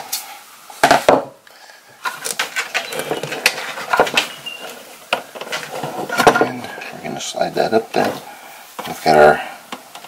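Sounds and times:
stiff cable wires clicking and scraping: 2.0s - 7.2s.

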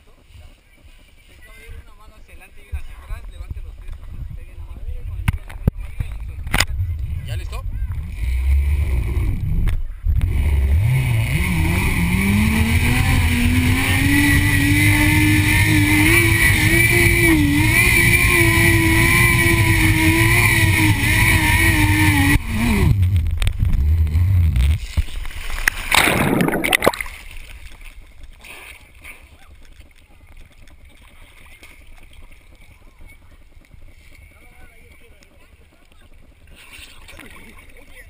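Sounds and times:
wind rumble on microphone: 0.2s - 26.8s
zipline trolley whine: 10.3s - 24.8s
splash into water: 24.9s - 29.8s.

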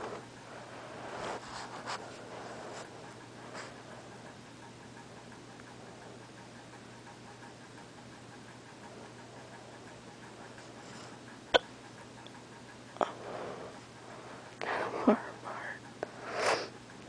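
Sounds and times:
person hiccuping: 11.5s - 11.7s
person breathing: 13.0s - 16.7s.

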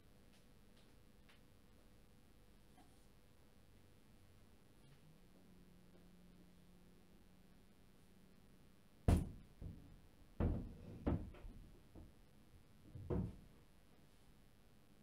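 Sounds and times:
dull knocks and thumps: 9.1s - 12.2s, 12.8s - 13.5s.

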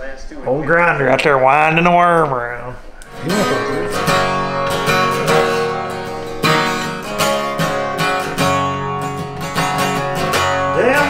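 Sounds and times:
acoustic guitar strumming: 3.0s - 11.0s.

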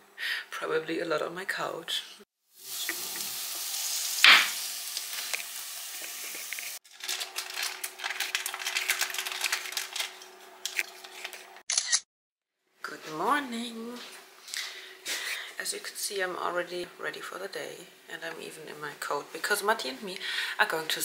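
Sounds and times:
lentils poured into pot: 6.2s - 10.2s.

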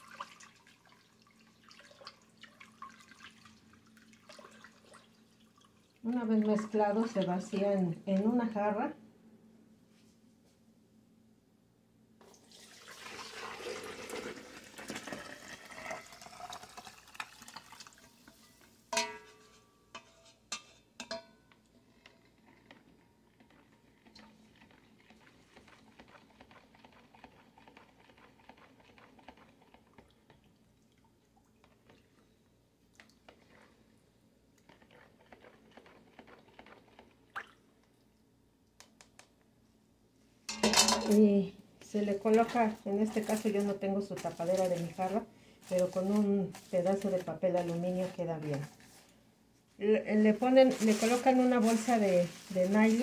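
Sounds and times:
milk pouring into pitcher: 0.0s - 7.1s, 12.2s - 18.3s, 22.0s - 32.3s, 34.6s - 38.0s
plastic spoon stirring: 22.0s - 30.5s, 34.6s - 37.2s, 42.3s - 49.2s, 50.4s - 53.0s.

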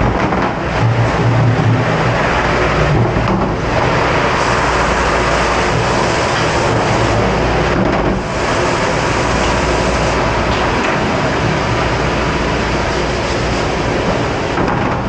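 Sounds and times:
spray nozzle blasting water: 3.6s - 14.5s.

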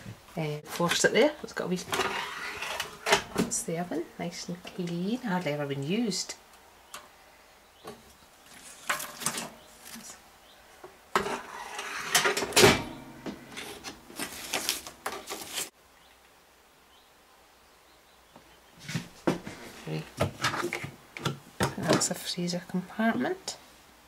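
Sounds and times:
metal oven trays clattering: 11.2s - 13.9s
glass oven door shutting: 12.2s - 13.0s.

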